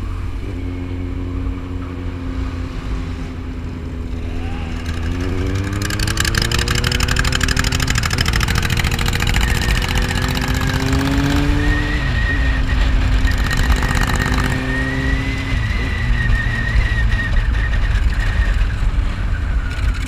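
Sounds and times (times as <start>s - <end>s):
motorcycle engine running: 0.0s - 20.0s
wind rumble on microphone: 10.2s - 20.0s.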